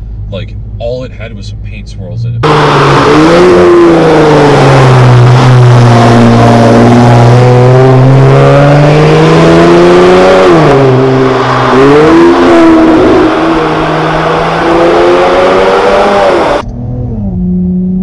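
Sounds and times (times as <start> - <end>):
car engine accelerating hard: 2.4 - 18.0.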